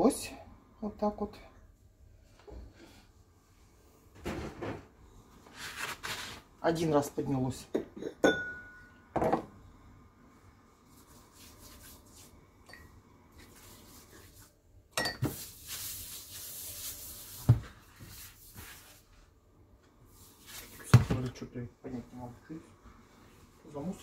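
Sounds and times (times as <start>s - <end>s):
objects knocking on worktop: 9.2s - 9.5s
brush rubbing on worktop: 10.8s - 12.4s, 13.3s - 14.6s, 15.3s - 19.3s, 20.1s - 20.9s.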